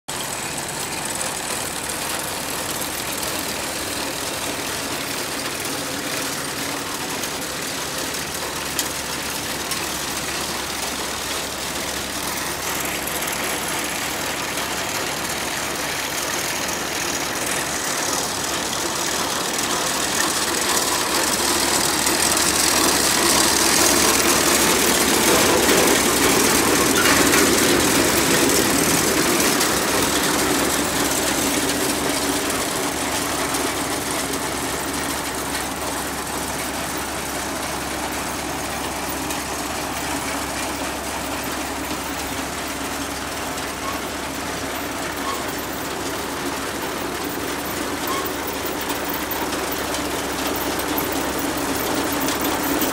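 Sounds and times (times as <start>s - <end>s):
tractor engine running: 0.0s - 52.9s
mechanical rattle: 11.2s - 39.5s.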